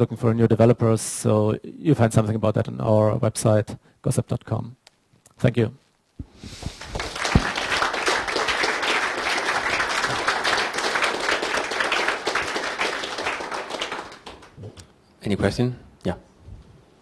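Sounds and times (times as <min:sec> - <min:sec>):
audience applauding: 0:06.8 - 0:14.7.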